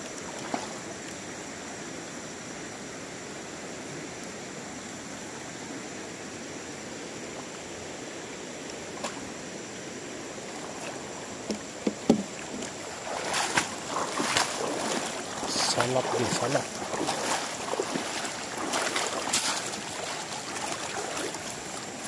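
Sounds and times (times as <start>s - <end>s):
shallow river flowing: 0.0s - 22.0s
water splashing off a net: 0.3s - 0.9s, 11.6s - 22.0s.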